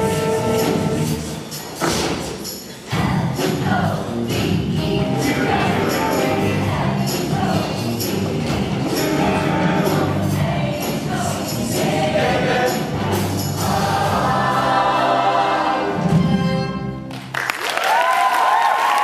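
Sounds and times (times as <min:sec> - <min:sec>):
instrumental accompaniment with beat: 0:00.0 - 0:15.0
choir singing: 0:00.0 - 0:16.9.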